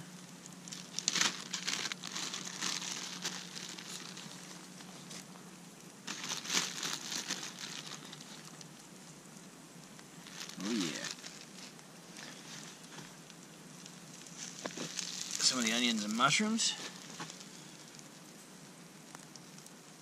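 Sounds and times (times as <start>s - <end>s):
plastic bag crinkling: 0.5s - 5.3s, 6.0s - 8.7s, 10.2s - 13.2s, 13.8s - 18.2s.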